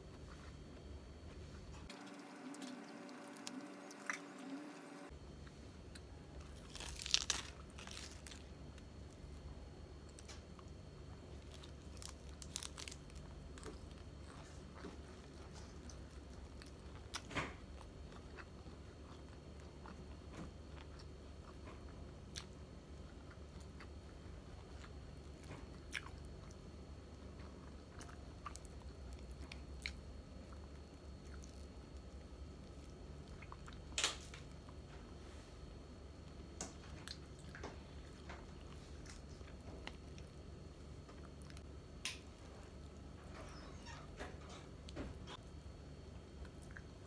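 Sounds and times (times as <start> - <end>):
steady low hum: 0.0 - 47.0
chewing and crunching: 5.4 - 34.9, 36.7 - 41.7, 46.2 - 47.0.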